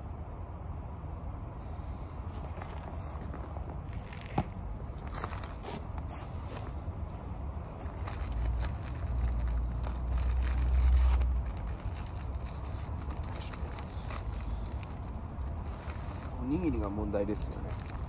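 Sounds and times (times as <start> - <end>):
crunchy chewing of fried food: 7.8 - 16.5.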